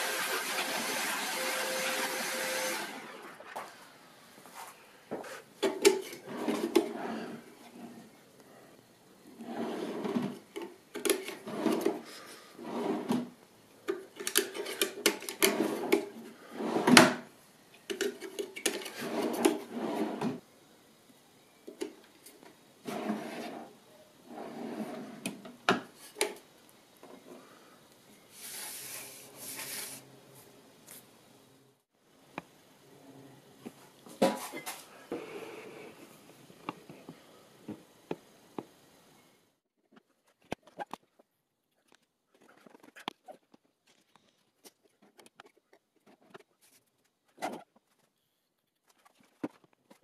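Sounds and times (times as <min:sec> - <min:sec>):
drawers rolling on slides: 0:06.0 - 0:08.0, 0:09.4 - 0:10.4, 0:11.2 - 0:12.0, 0:12.6 - 0:13.3, 0:15.4 - 0:17.2, 0:18.8 - 0:20.4, 0:22.8 - 0:23.7, 0:24.3 - 0:25.4
brief hiss: 0:28.3 - 0:30.1.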